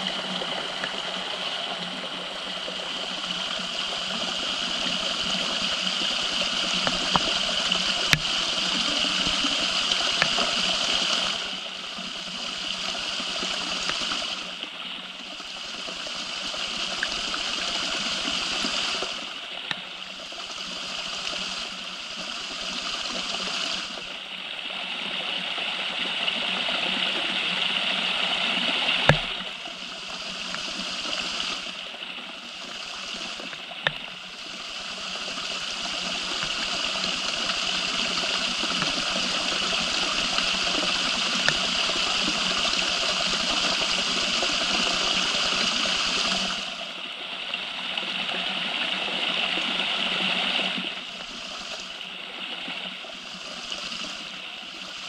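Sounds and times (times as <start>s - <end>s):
falling water rushing: 0.0s - 24.2s, 25.5s - 55.0s
water drips: 4.1s - 11.5s, 33.2s - 34.2s, 35.6s - 43.9s.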